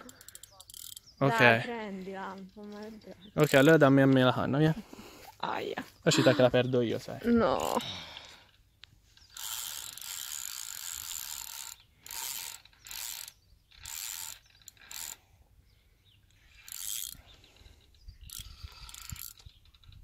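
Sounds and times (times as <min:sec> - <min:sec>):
fishing reel clicking: 0:00.0 - 0:01.5, 0:09.3 - 0:15.2, 0:16.3 - 0:20.0.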